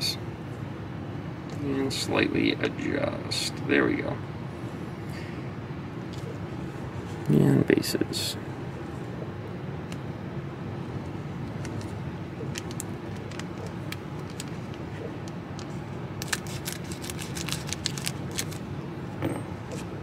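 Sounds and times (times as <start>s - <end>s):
steady low hum: 0.0s - 20.0s
foil wrapper crinkling: 12.4s - 14.8s, 16.2s - 18.7s
scissors snipping foil pack: 16.2s - 18.6s.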